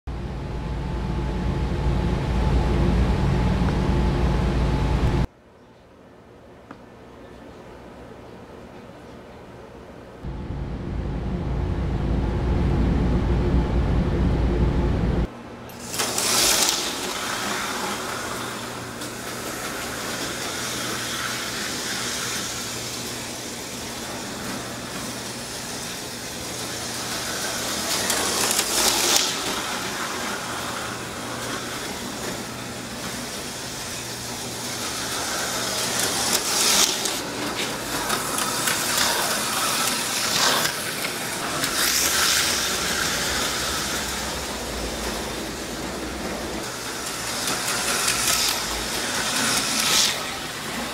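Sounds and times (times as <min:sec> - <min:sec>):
steady low hum: 0:00.1 - 0:15.7
slot car motors whirring: 0:10.2 - 0:50.9.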